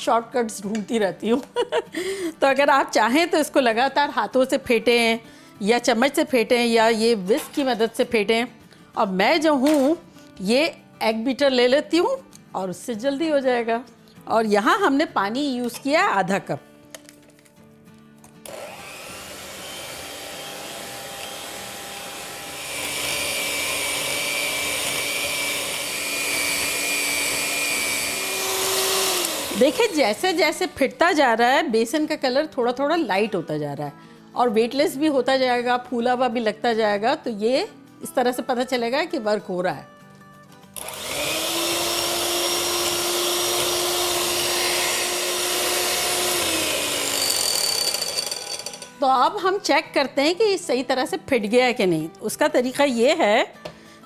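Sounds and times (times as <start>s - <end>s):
electric hand mixer whining: 18.4s - 30.4s, 40.8s - 48.9s.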